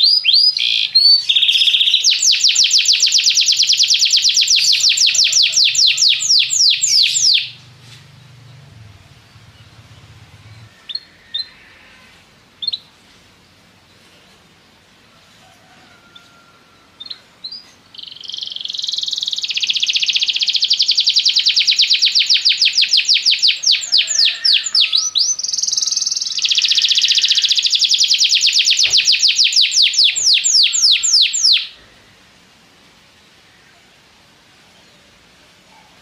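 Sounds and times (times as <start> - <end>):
canary singing trills: 0.0 - 12.0, 12.6 - 12.9, 16.9 - 31.9.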